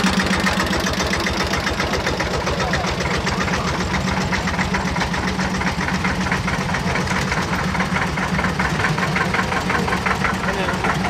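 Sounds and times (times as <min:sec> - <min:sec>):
diesel tractor engine knocking: 0:00.0 - 0:11.0.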